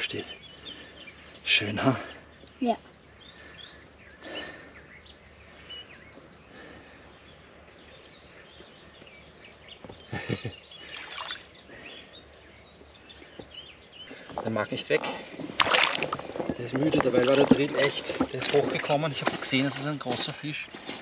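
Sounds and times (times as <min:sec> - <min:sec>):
small birds chirping and singing: 0:00.0 - 0:21.0
shallow water splashing: 0:10.8 - 0:11.6, 0:15.1 - 0:19.9.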